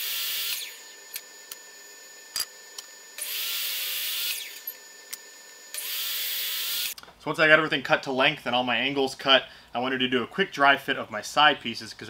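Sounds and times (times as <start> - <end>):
miter saw cutting wood: 0.0 - 2.3, 3.1 - 7.0.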